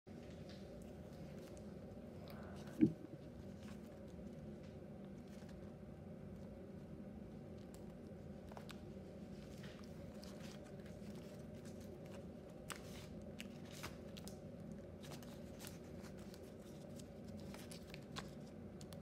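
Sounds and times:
steady low hum: 0.1s - 19.0s
paper crinkling: 7.4s - 19.0s.

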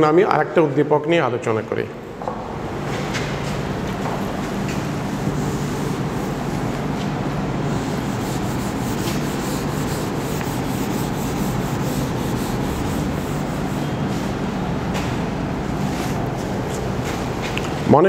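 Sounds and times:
eraser rubbing on whiteboard: 7.7s - 14.3s.

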